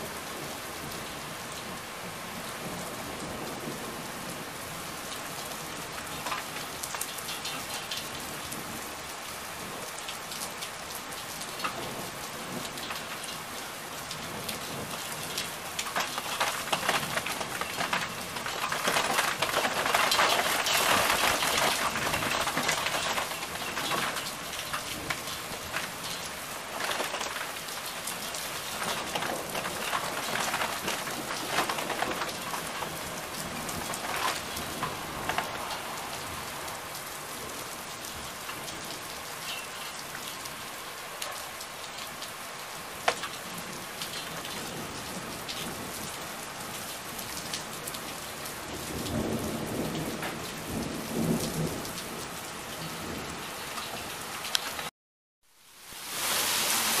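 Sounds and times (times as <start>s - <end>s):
heavy rain on paving and rooftops: 0.0s - 54.9s, 55.5s - 57.0s
thunder rumbling: 14.3s - 37.6s.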